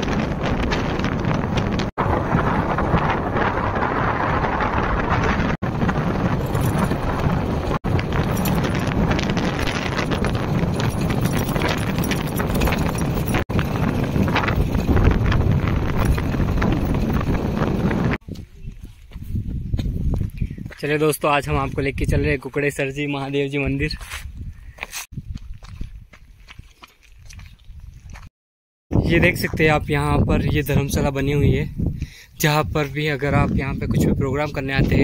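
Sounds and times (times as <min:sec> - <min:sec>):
vehicle rumbling on rough road: 0:00.0 - 0:18.2
wind buffeting microphone: 0:00.0 - 0:22.6, 0:23.6 - 0:28.3, 0:28.9 - 0:35.0.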